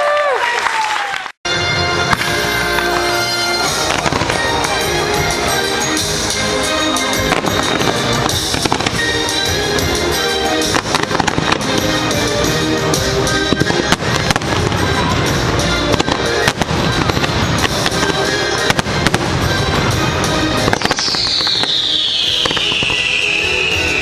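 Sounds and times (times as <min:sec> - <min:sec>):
music: 0:01.5 - 0:24.0
fireworks bangs and crackling: 0:01.6 - 0:24.0
firework whistle falling in pitch: 0:20.6 - 0:24.0.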